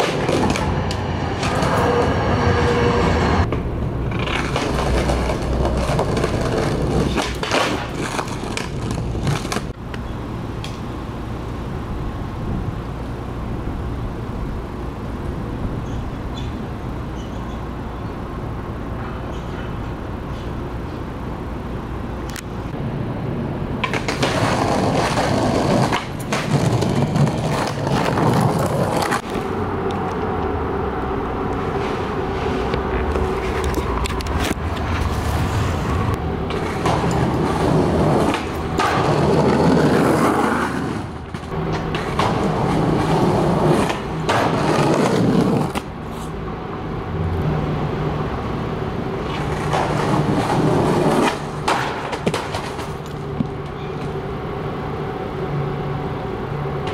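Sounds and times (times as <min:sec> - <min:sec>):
skateboard clacks: 0:00.0 - 0:01.8, 0:03.5 - 0:10.0, 0:23.8 - 0:29.5, 0:36.4 - 0:45.9, 0:49.2 - 0:54.2
skateboard wheels rolling on stone: 0:00.0 - 0:02.2, 0:03.4 - 0:10.0, 0:23.8 - 0:30.4, 0:31.5 - 0:46.4, 0:48.9 - 0:54.6.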